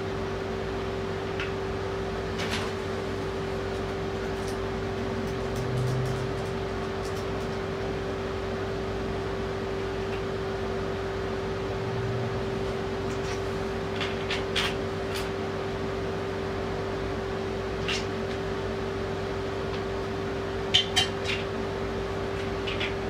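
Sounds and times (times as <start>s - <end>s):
steady mechanical hum: 0.0s - 23.0s.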